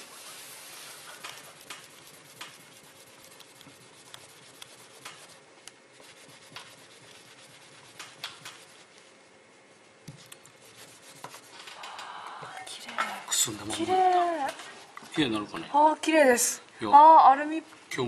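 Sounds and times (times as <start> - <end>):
paper tissue wiping: 0.0 - 11.7.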